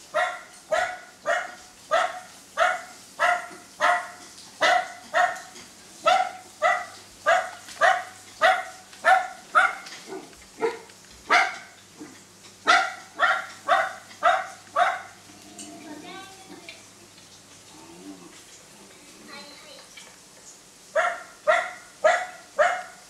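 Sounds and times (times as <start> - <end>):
recorded dog barking: 0.1 - 15.2, 20.9 - 23.0.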